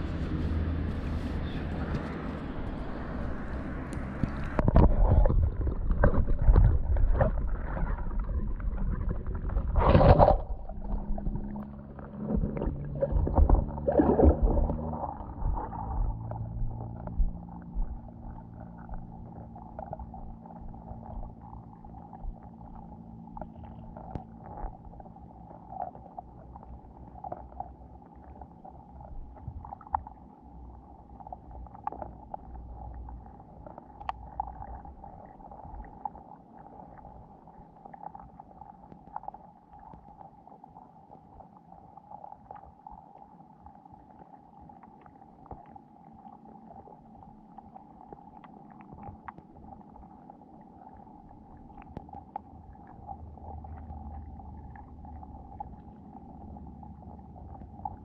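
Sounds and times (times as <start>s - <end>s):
muffled underwater hum: 0.0s - 58.0s
small underwater clicks: 1.8s - 58.0s.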